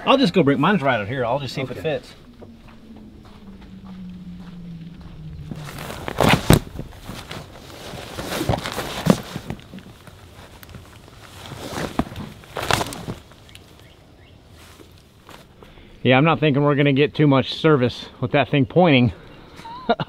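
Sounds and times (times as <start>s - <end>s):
footsteps: 0.6s - 13.3s
camping gear clattering: 5.2s - 13.8s, 14.6s - 15.6s.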